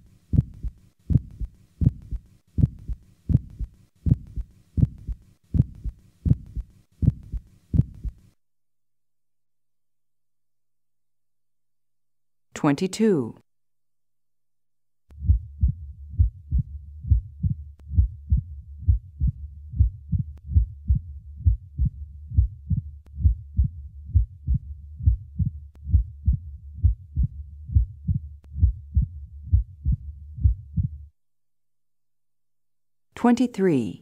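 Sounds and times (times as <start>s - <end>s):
steady low hum: 0.0s - 8.4s, 15.1s - 31.2s
heartbeat through stethoscope: 0.3s - 8.2s, 15.1s - 31.1s.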